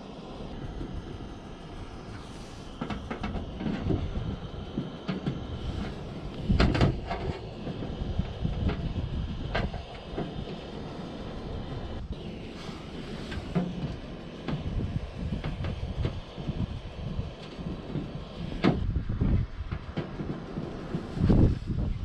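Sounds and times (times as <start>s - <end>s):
gas burner rushing: 0.0s - 22.0s.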